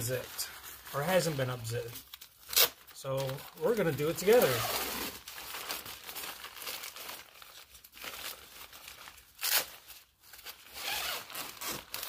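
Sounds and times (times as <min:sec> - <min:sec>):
tent fabric rustling: 0:10.8 - 0:11.7.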